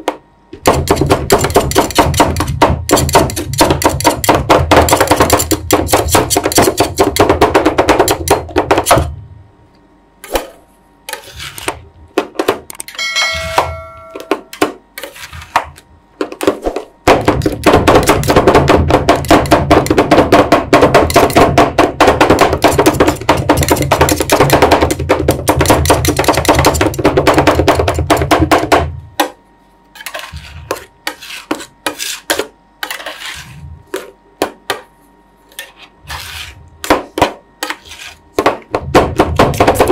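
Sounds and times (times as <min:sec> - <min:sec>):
brief metallic ring: 0:13.0 - 0:14.3.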